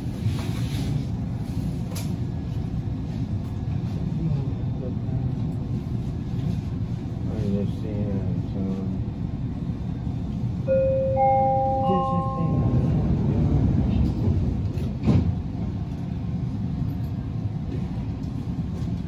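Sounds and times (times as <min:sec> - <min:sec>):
low hum of stopped train: 0:00.0 - 0:19.0
train door chime rising notes: 0:10.7 - 0:13.0.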